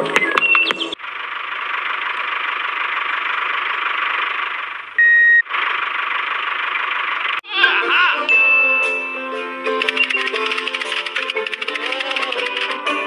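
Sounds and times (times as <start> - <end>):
steady beep: 5.0 - 5.4, 8.3 - 9.3.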